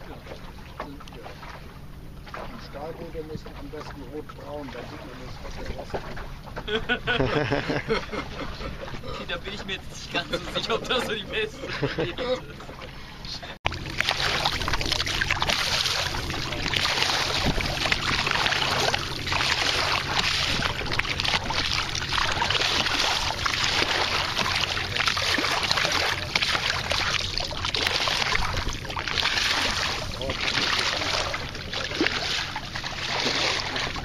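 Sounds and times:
steady low rumble: 0.0 - 34.0
water rushing along a hull: 0.0 - 34.0.

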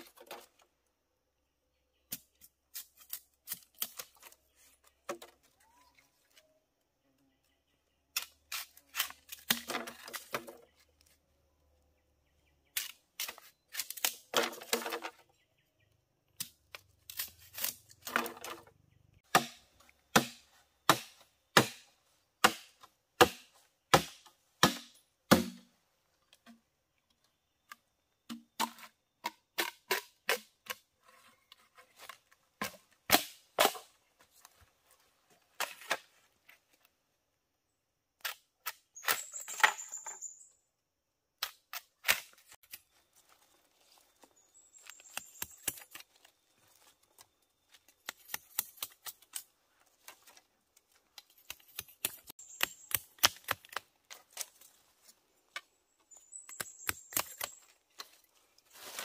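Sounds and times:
machete chopping bamboo: 8.2 - 10.5, 12.8 - 15.0, 19.3 - 25.7, 28.3 - 30.8, 32.6 - 33.9, 41.4 - 42.8, 48.0 - 49.4, 51.4 - 54.5, 56.5 - 57.6
bamboo cane crackling split: 12.8 - 14.4, 16.4 - 18.5.

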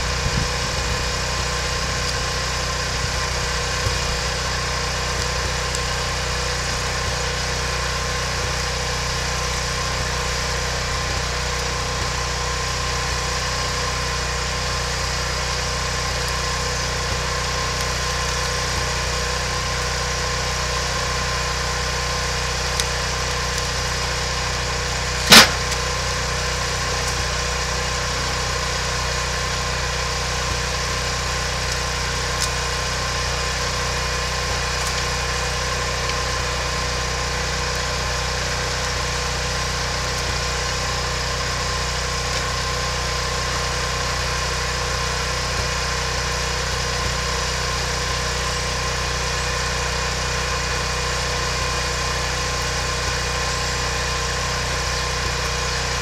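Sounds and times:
steady machine drone: 0.0 - 56.0
sharp knock: 25.3 - 25.8.

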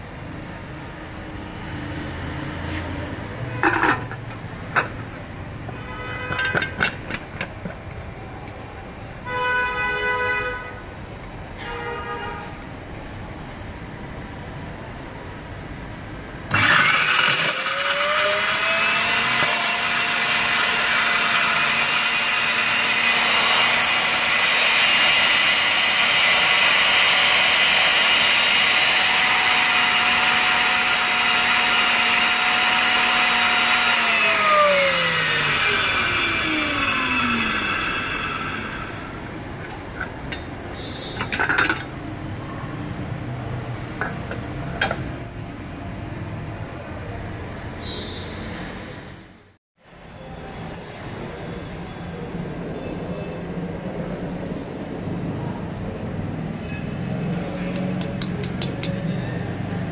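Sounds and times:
blades grinding paper: 16.5 - 39.0
electric chopper motor whine: 16.5 - 39.3.

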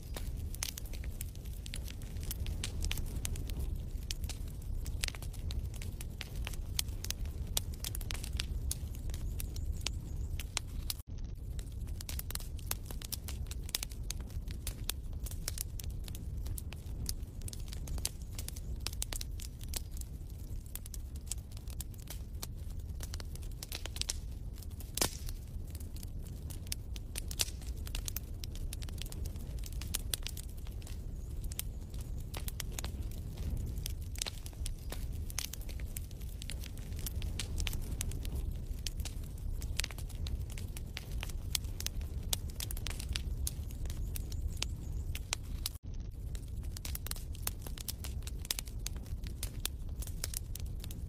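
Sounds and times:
wood fire crackling: 0.0 - 51.0.

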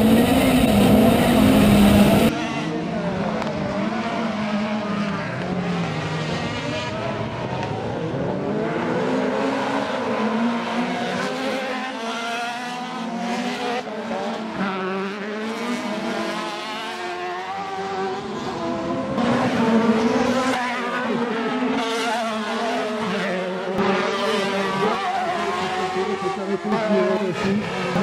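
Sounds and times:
buggy engines racing past: 0.0 - 28.0.

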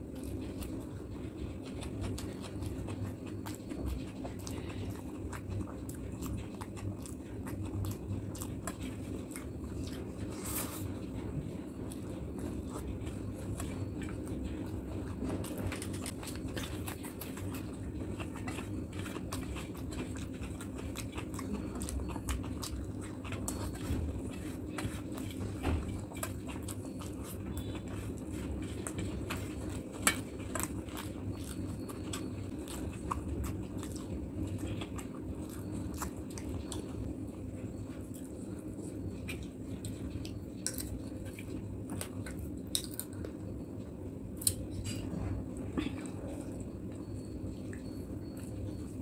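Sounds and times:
chewing and wet mouth sounds: 0.0 - 49.0.

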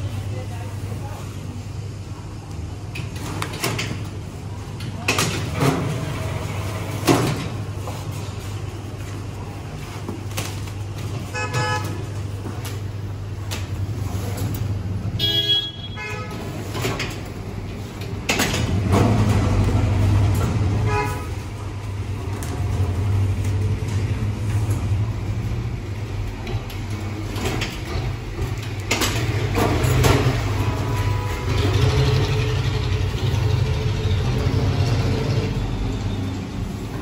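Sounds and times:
vehicle horn tooting: 11.3 - 12.0, 15.2 - 16.5, 20.8 - 21.4, 30.8 - 32.0
vehicle engines humming: 16.5 - 37.0.

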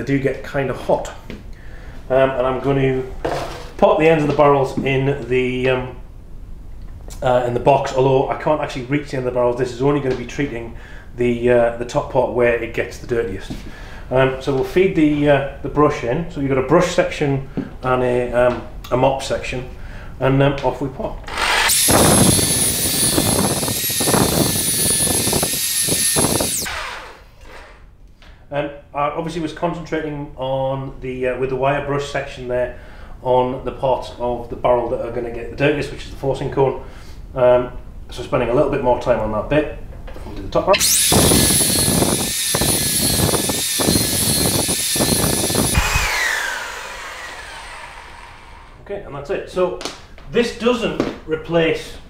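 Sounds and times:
power drill whine: 21.3 - 27.8, 40.8 - 48.8.

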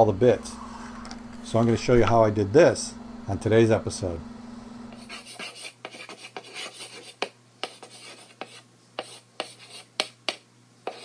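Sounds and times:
chalk scratching on blackboard: 5.0 - 11.0
chalk tapping on board: 5.0 - 11.0.

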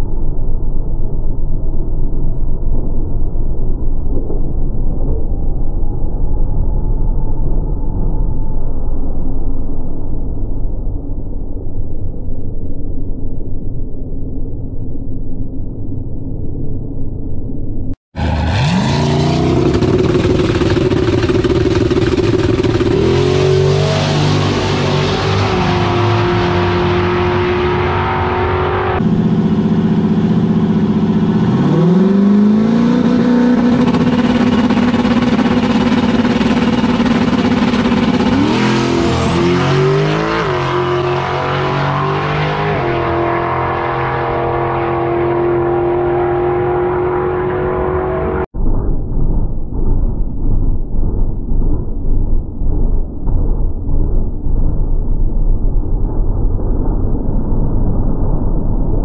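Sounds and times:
pickup truck engines at full throttle: 18.2 - 48.4.

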